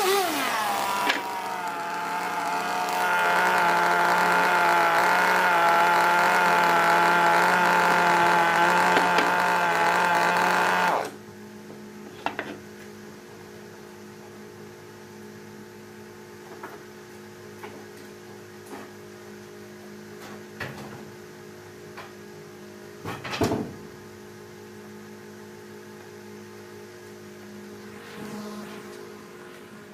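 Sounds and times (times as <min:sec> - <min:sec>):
chainsaw engine cutting off: 0:00.0 - 0:11.2
steady low hum: 0:24.0 - 0:29.9.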